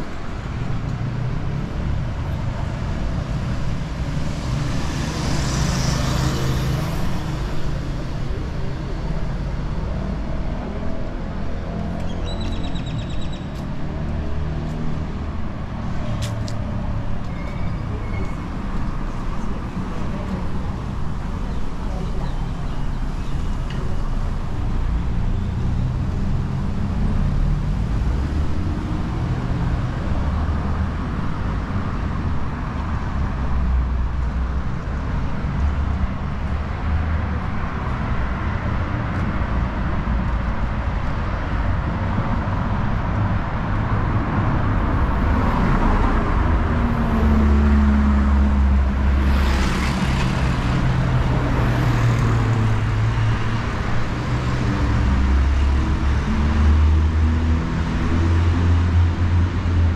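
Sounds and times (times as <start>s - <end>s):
traffic engine and tyre noise: 0.0s - 59.9s
loud vehicle rumbling past: 43.1s - 59.9s.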